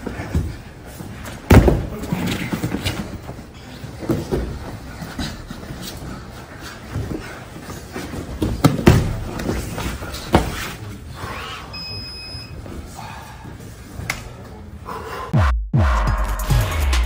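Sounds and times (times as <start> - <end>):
bodies thudding on padded mats: 0.0 - 3.3, 7.0 - 10.7.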